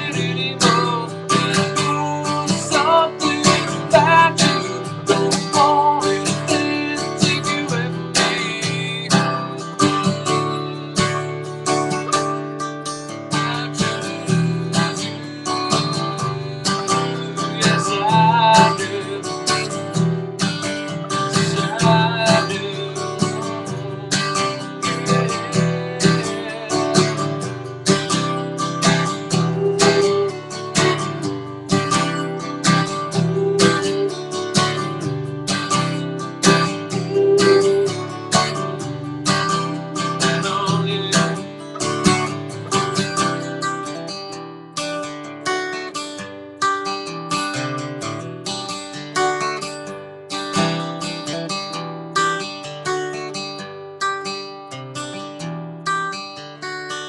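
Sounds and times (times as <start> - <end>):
man singing: 0.0 - 12.2, 13.0 - 43.4
acoustic guitar strumming: 0.0 - 57.0.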